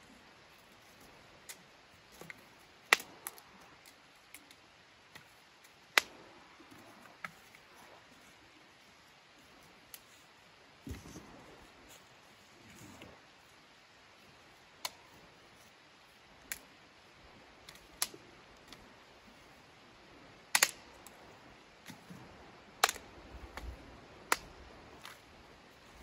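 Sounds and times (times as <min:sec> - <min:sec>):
faint background noise: 0:00.0 - 0:26.0
sharp clicks and snaps: 0:16.4 - 0:16.7, 0:20.5 - 0:21.2, 0:22.8 - 0:23.7.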